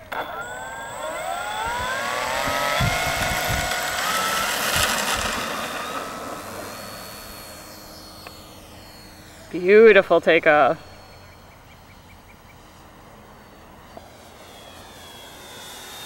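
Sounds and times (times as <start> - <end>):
electric motor and propeller whining: 0.0 - 16.0.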